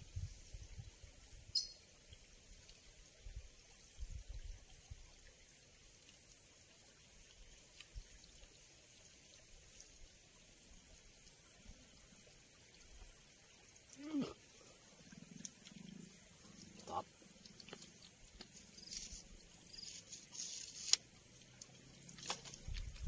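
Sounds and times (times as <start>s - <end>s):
insects chirring: 1.5s - 1.8s, 5.3s - 23.0s.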